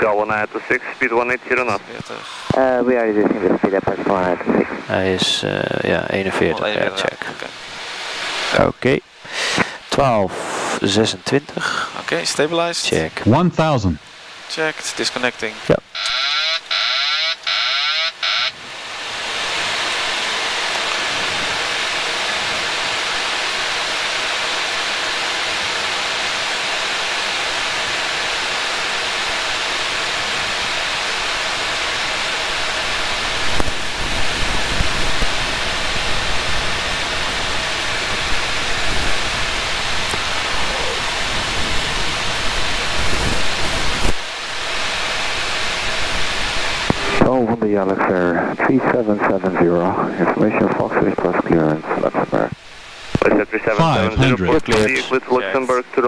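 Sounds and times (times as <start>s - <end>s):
aircraft engine noise: 13.8s - 56.0s
warbling warning tone: 15.9s - 18.6s.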